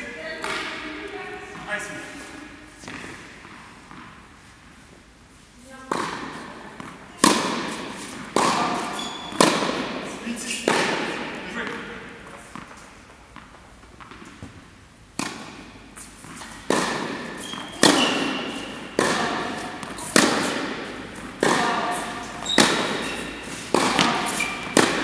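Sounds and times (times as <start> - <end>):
tennis ball hits echoing: 0.4 - 0.8, 5.9 - 14.6, 15.2 - 15.8, 16.4 - 25.0.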